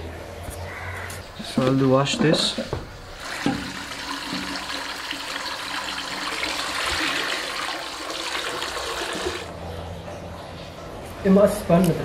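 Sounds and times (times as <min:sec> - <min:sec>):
tap water splashing into pot: 0:03.4 - 0:04.9.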